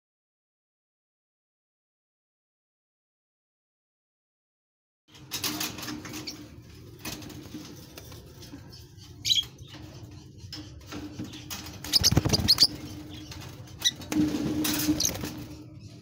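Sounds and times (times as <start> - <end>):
birds scuffling on cage bars: 5.1 - 16.0
bird wing flutters: 11.8 - 13.0.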